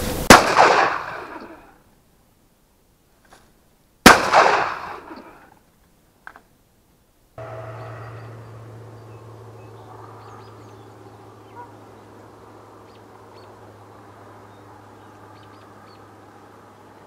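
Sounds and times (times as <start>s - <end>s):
steady low hum: 7.4s - 17.0s.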